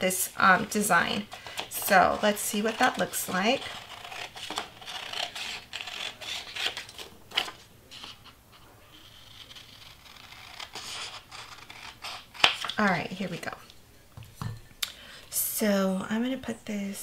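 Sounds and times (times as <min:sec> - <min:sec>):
paper rustling: 0:02.8 - 0:09.7.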